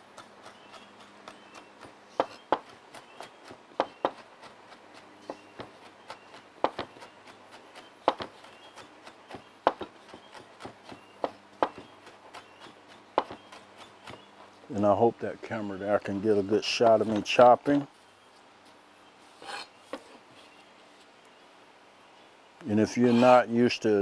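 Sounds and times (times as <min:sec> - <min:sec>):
knife chopping on cutting board: 0:00.4 - 0:14.3.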